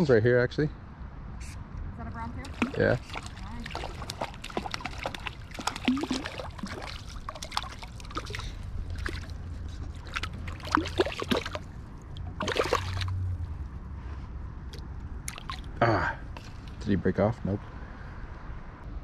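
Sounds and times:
river water splashing: 2.4s - 13.6s, 15.2s - 17.0s.

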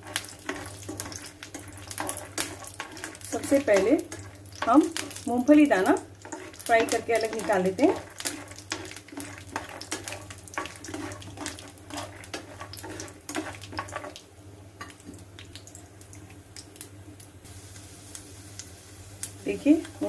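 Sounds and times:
spoon scraping a pan: 0.0s - 14.2s
peanuts sizzling in oil: 0.0s - 20.0s.

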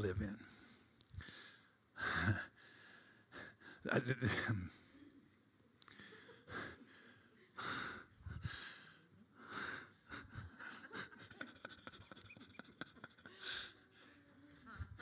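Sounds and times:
person breathing close to microphone: 5.9s - 10.9s.

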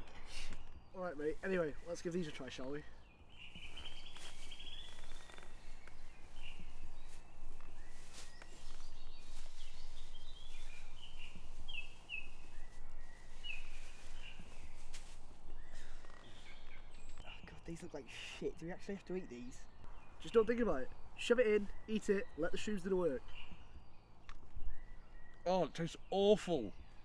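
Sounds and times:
small birds chirping: 0.0s - 27.0s
soft rustles and clicks: 3.6s - 17.3s.

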